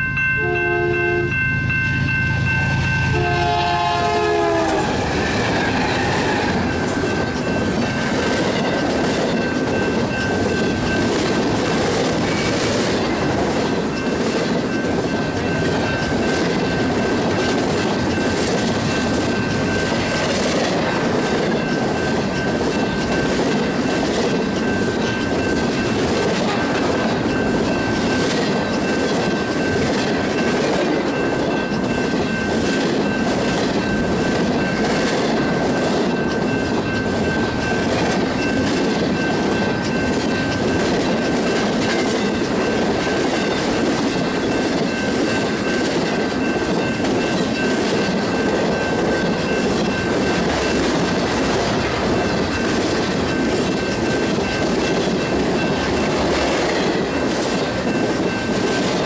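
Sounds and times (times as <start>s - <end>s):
train wheels clattering over rail joints: 3.5s - 59.0s.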